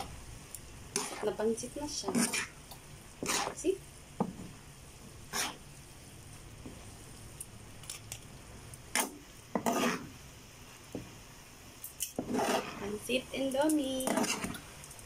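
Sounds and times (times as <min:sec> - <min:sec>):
utensils scraping a frying pan: 0:00.9 - 0:02.6, 0:03.2 - 0:03.6, 0:05.3 - 0:05.6, 0:08.9 - 0:10.1, 0:12.0 - 0:14.6.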